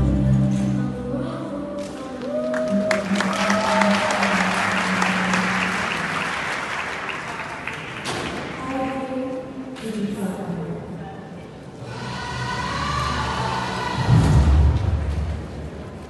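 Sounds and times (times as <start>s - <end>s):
audience applause: 2.3s - 8.6s.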